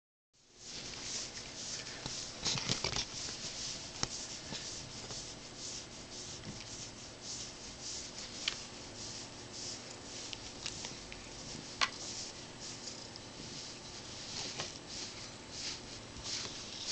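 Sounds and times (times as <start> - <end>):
hand rubbing cat fur: 0.5 - 16.9.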